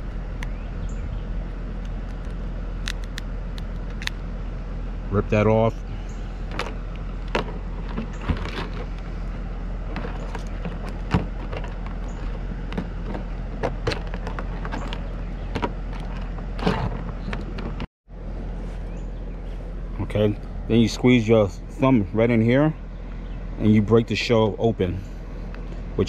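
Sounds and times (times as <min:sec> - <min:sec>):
low mechanical hum: 0:00.0 - 0:26.0
crab shell cracking: 0:01.8 - 0:04.2.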